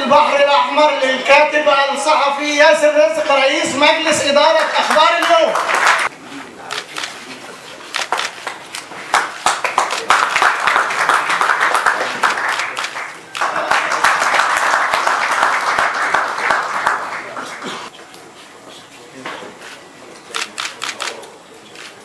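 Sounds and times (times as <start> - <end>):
audience applauding: 4.5 - 6.1, 8.0 - 17.9.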